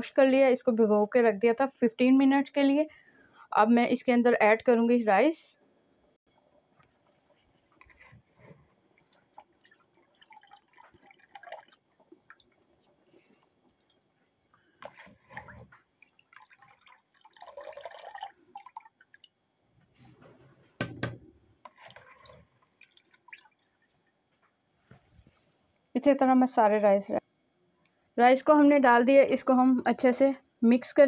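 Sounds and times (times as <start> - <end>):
stock boiling in a wok: 6.3 - 24.2
drips and splashes: 9.0 - 19.4, 21.6 - 24.1.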